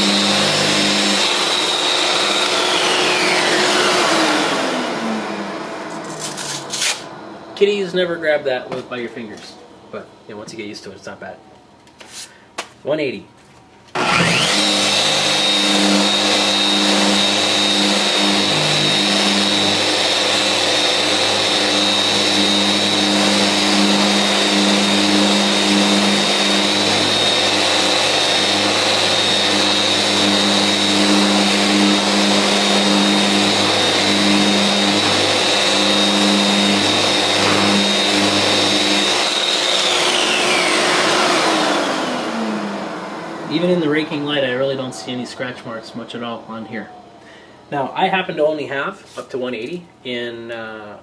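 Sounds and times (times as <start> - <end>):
orbital sander whining: 0.0 - 8.4, 13.9 - 46.8
dust extractor running: 0.0 - 8.8, 13.9 - 46.6.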